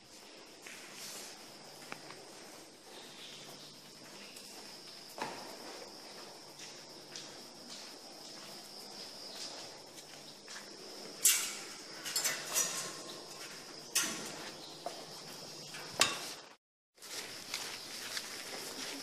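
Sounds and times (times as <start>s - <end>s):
metal gate clanking and rattling: 11.2s - 14.5s, 15.6s - 16.4s.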